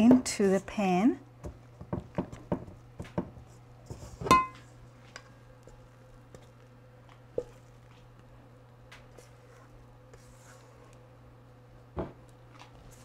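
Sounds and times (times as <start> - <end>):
metal bowl ringing: 4.3 - 4.6.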